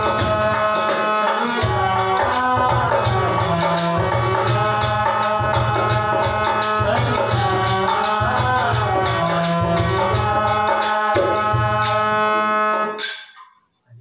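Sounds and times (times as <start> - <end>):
harmonium chords: 0.0 - 13.0
man singing: 0.0 - 13.0
hand cymbals striking: 13.0 - 13.6.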